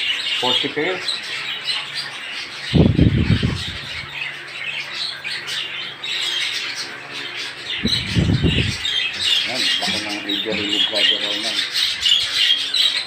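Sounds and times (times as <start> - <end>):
budgerigars chattering and squawking: 0.0 - 13.0
low rumbling bursts: 7.8 - 9.0.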